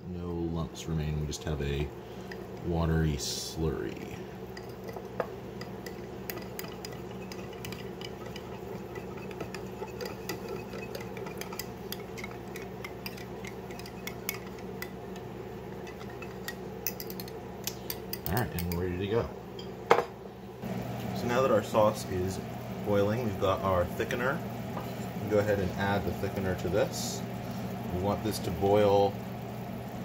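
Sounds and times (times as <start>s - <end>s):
steady low hum: 0.0s - 30.0s
wire whisk clinking on glass bowl: 4.6s - 14.9s.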